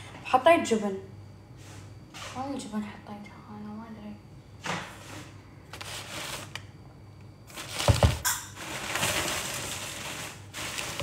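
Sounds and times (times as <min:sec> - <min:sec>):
rustling on counter: 0:04.9 - 0:06.6, 0:07.5 - 0:11.0.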